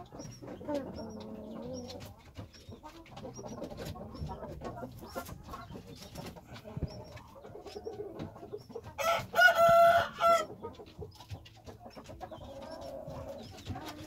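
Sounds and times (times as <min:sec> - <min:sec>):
chicken clucking: 0:00.0 - 0:14.0
rooster crowing: 0:09.0 - 0:10.5.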